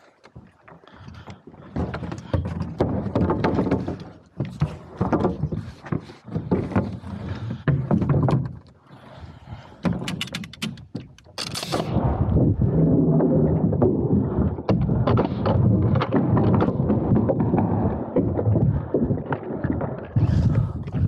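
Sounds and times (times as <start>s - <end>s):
boards knocking and clattering: 1.6s - 8.7s.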